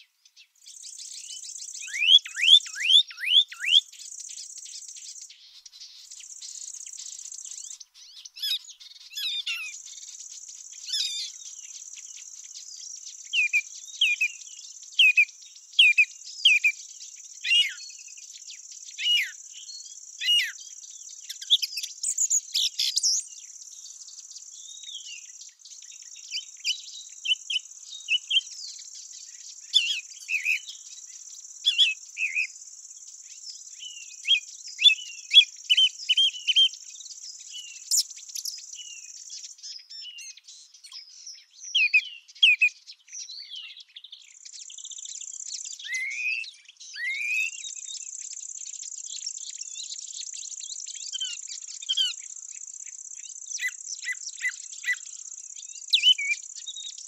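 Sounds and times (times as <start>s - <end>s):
small birds chirping: 0.0s - 57.0s
high insect trill: 8.6s - 40.0s, 47.6s - 57.0s.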